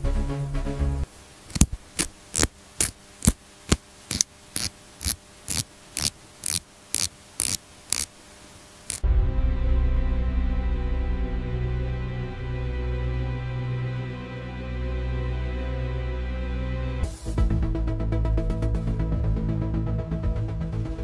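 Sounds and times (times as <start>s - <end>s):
background music: 0.0s - 1.1s, 9.0s - 21.0s
faint hum: 1.0s - 15.4s
sharp dry clicks: 1.5s - 8.1s, 8.8s - 9.0s.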